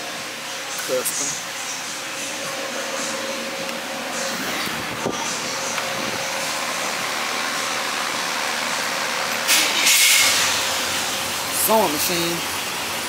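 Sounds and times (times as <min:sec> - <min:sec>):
loud burst of hiss: 0:09.5 - 0:10.9.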